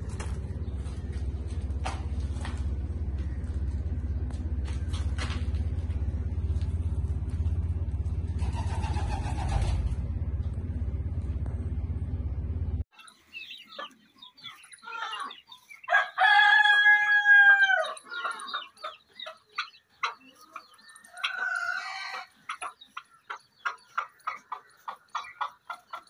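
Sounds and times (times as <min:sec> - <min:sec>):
low hum: 0:00.0 - 0:13.8
poultry calling: 0:13.0 - 0:26.0.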